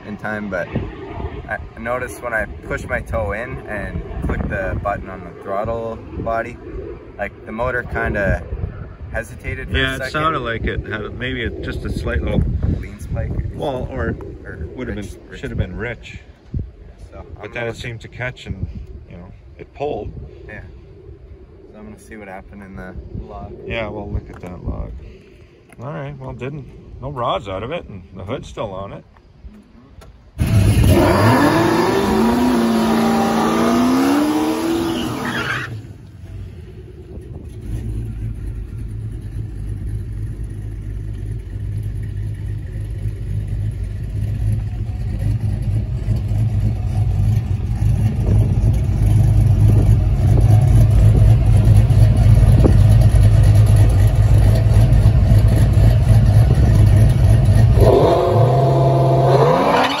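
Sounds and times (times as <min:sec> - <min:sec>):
deep engine rumble: 0:00.0 - 0:28.2, 0:29.6 - 0:59.9
car engine revving: 0:30.4 - 0:35.9, 0:37.4 - 1:00.0.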